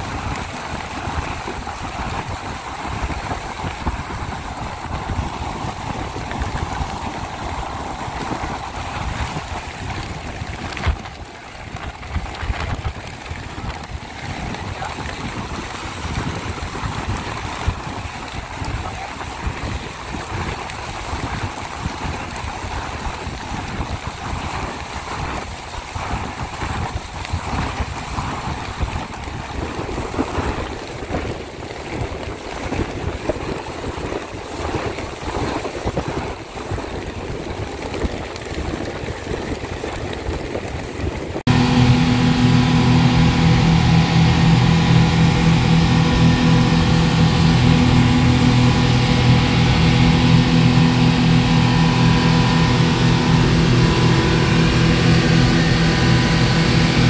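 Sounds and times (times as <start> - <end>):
speedboat engine drone: 0.0 - 29.2, 41.5 - 57.0
rushing water: 0.0 - 57.0
wind: 0.0 - 57.0.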